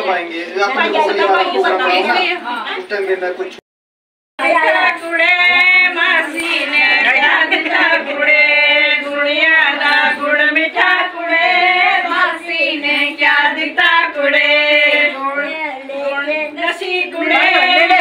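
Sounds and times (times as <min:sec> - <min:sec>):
women singing together: 0:04.4 - 0:18.0.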